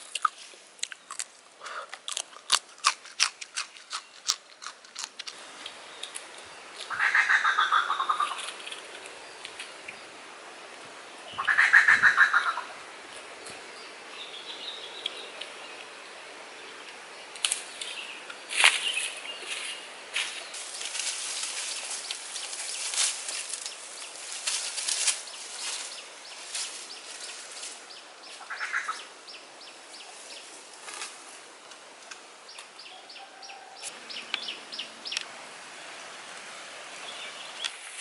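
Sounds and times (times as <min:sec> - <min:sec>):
footsteps on dry leaves: 0:17.5 - 0:28.6, 0:30.0 - 0:31.5.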